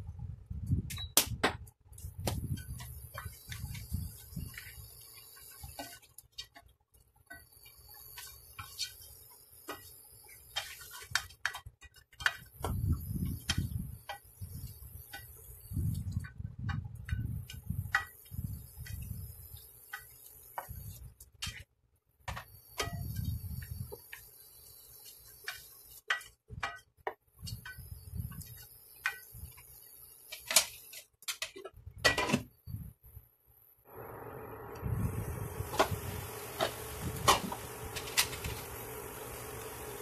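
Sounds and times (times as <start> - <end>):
spoon stirring meat in a pot: 2.6 - 21.6.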